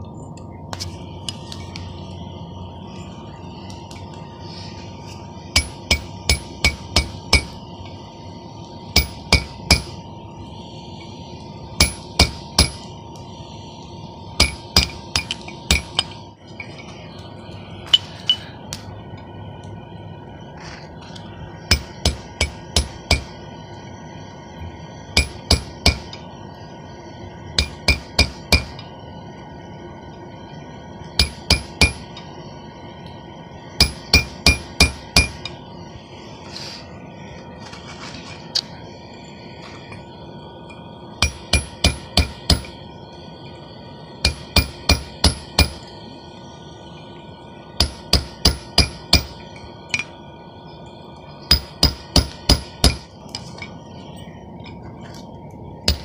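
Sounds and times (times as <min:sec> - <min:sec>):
hammer striking chisel on steel: 0:05.6 - 0:07.6, 0:09.0 - 0:10.0, 0:11.8 - 0:12.8, 0:14.4 - 0:16.2, 0:21.7 - 0:23.3, 0:25.2 - 0:26.1, 0:27.6 - 0:28.8, 0:31.2 - 0:32.1, 0:33.8 - 0:35.5, 0:41.2 - 0:42.8, 0:44.2 - 0:45.8, 0:47.8 - 0:50.1, 0:51.5 - 0:53.0.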